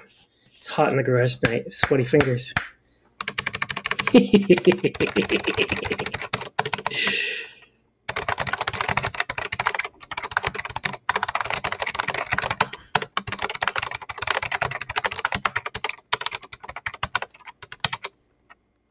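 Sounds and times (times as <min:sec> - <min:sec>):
fast keyboard typing: 0:03.2 - 0:07.2, 0:08.1 - 0:18.2.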